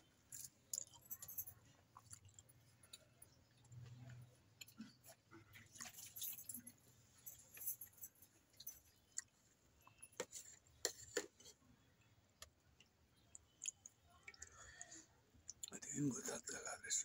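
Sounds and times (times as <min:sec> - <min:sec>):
person chewing: 0:01.9 - 0:06.1, 0:08.9 - 0:15.7.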